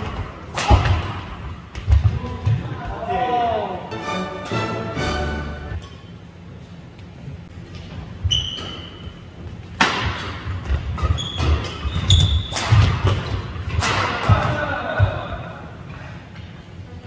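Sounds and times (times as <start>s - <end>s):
racket hitting shuttlecock: 0.0s - 2.1s, 9.8s - 15.0s
shoes squeaking on court: 7.6s - 9.7s, 10.6s - 13.0s.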